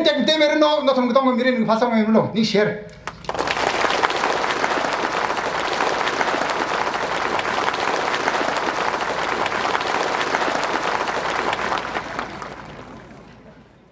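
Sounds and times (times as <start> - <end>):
large crowd applauding: 3.0 - 13.9.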